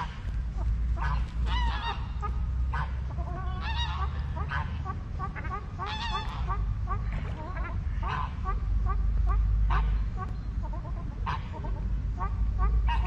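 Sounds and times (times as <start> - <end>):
geese calling: 0.0 - 13.0
loud goose honks: 0.0 - 13.0
low rumble: 0.0 - 13.0.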